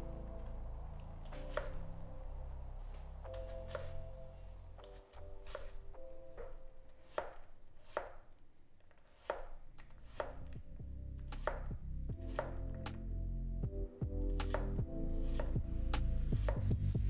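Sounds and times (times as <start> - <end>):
knife chopping on wooden board: 1.4 - 1.8, 5.4 - 5.8, 6.4 - 8.3, 9.1 - 10.6, 11.2 - 12.9, 14.4 - 15.6.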